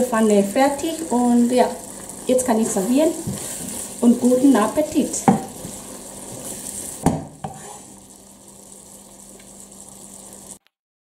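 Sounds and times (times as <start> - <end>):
food sizzling in a frying pan: 0.0 - 10.6.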